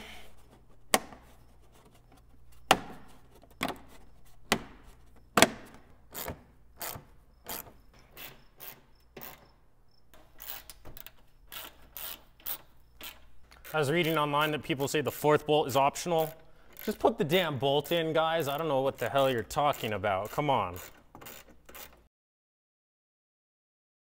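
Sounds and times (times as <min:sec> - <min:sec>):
hand ratchet cranking: 0:05.6 - 0:09.5, 0:10.2 - 0:22.1.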